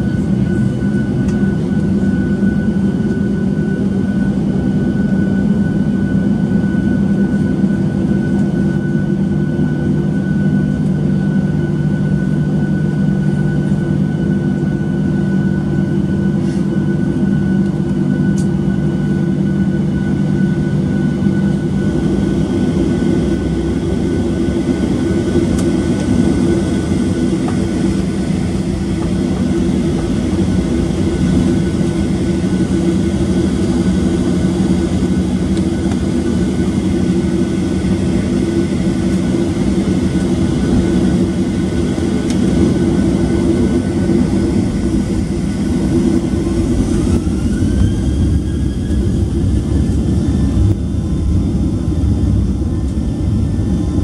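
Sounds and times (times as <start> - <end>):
jet engine drone: 0.0 - 54.0
jet engine whine: 0.0 - 54.0.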